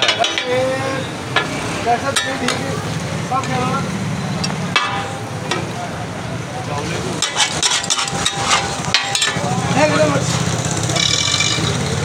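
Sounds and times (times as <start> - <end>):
metal spatula scraping pan: 7.2 - 9.4, 11.0 - 11.9.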